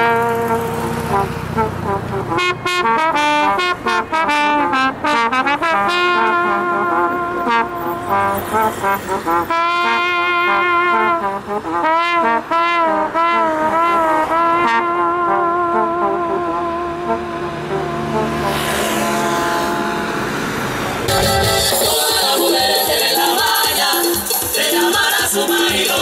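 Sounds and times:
trombones playing slow melody: 0:00.0 - 0:20.5.

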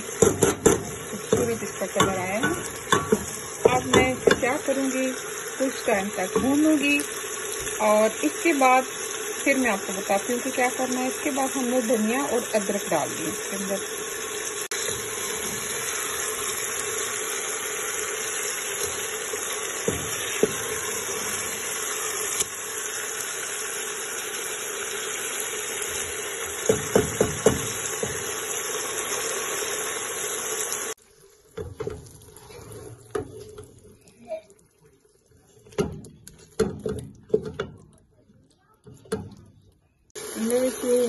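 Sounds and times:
food sizzling in a pot: 0:00.0 - 0:34.4, 0:40.2 - 0:41.0
wooden spoon knocking a pot: 0:00.1 - 0:04.7, 0:06.2 - 0:06.8, 0:19.8 - 0:20.8, 0:26.6 - 0:28.4, 0:35.7 - 0:38.0.

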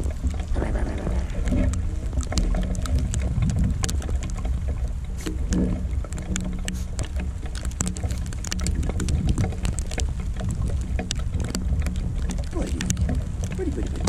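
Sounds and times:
sleet ticking on camera: 0:00.0 - 0:14.0
steady low rumble: 0:00.0 - 0:14.0.

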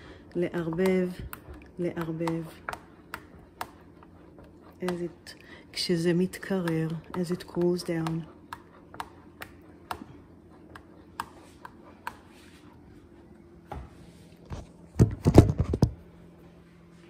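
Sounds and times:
wooden spoon stirring in saucepan: 0:00.0 - 0:13.3
faint steady hum: 0:00.0 - 0:17.0.

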